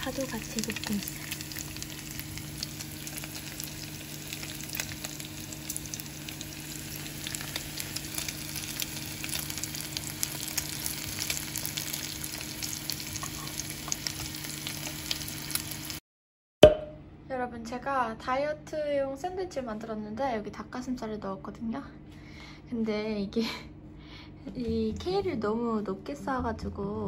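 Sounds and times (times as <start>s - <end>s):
steady low hum: 0.0s - 14.8s
fat crackling and popping: 0.0s - 15.7s
meat sizzling in a frying pan: 0.0s - 16.0s.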